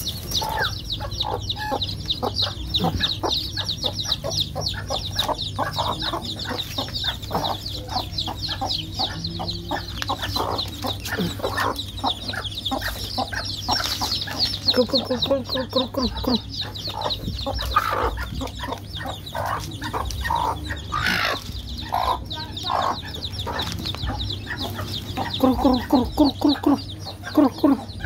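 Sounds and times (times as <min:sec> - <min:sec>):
chicks peeping: 0:00.0 - 0:28.0
hen clucking: 0:00.0 - 0:28.0.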